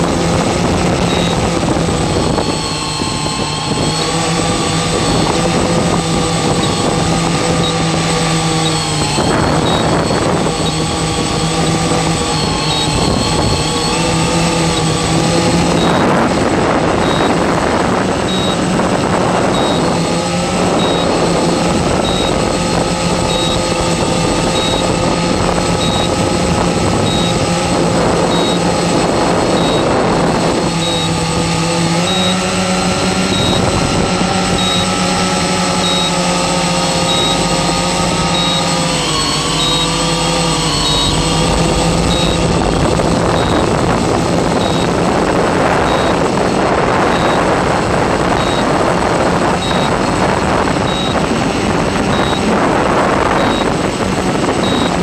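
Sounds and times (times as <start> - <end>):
drone motors and propellers humming: 0.0 - 55.0
short high beep: 1.0 - 1.5, 8.6 - 11.0, 12.1 - 16.2, 17.0 - 17.4, 18.2 - 18.7, 19.4 - 21.4, 22.0 - 22.6, 23.2 - 23.8, 24.4 - 25.0, 25.7 - 26.3, 27.0 - 27.4, 28.2 - 28.7, 29.4 - 30.0, 30.7 - 31.2, 32.0 - 32.5, 33.2 - 33.8, 34.4 - 45.0, 45.8 - 46.3, 47.0 - 47.5, 48.3 - 48.9, 49.6 - 50.1, 50.8 - 51.2, 52.1 - 52.5, 53.3 - 53.8, 54.6 - 55.0.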